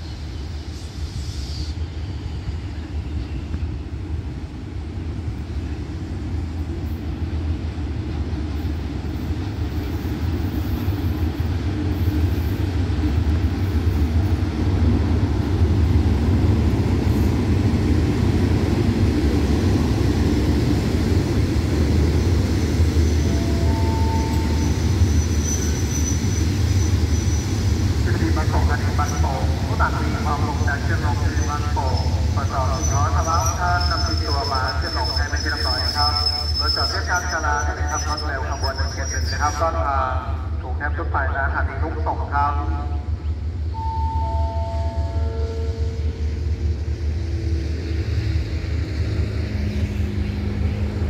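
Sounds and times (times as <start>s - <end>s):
train wheels on rails: 0.0s - 39.8s
diesel locomotive engine rumble: 0.0s - 51.0s.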